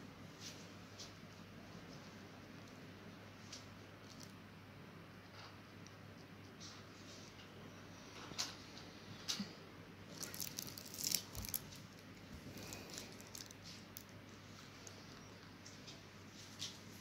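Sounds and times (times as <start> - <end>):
paper rustling: 10.1 - 14.1.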